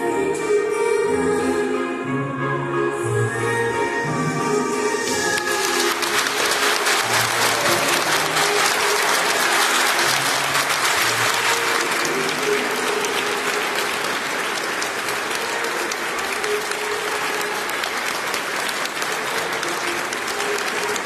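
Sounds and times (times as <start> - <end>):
audience applauding: 5.0 - 21.0.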